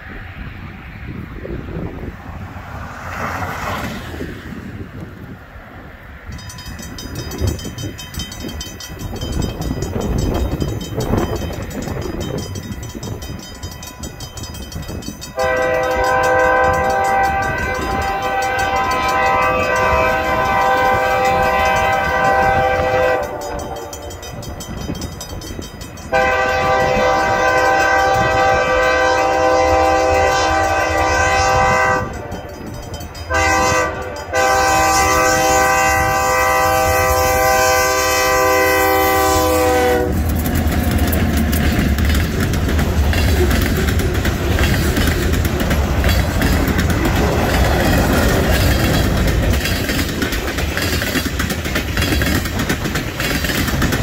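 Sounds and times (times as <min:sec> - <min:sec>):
train wheels rumbling and clattering: 0:00.0 - 0:54.0
locomotive multi-chime air horn: 0:06.4 - 0:40.2.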